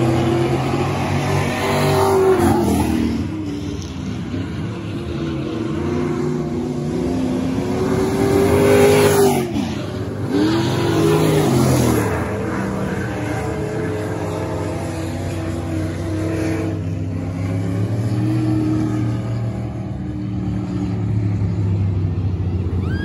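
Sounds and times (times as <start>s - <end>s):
racing car engines: 0.0s - 23.0s.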